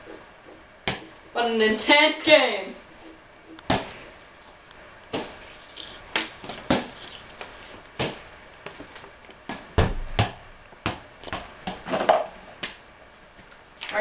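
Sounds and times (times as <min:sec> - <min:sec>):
heavy ball thud: 0:03.7 - 0:04.0, 0:05.1 - 0:05.4, 0:08.0 - 0:08.3, 0:09.5 - 0:11.8.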